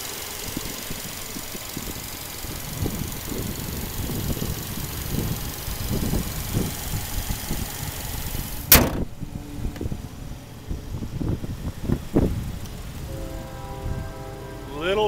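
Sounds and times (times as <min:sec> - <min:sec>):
engine bay hiss and rumble: 0:00.0 - 0:15.0
car hood slamming shut: 0:08.6 - 0:09.2.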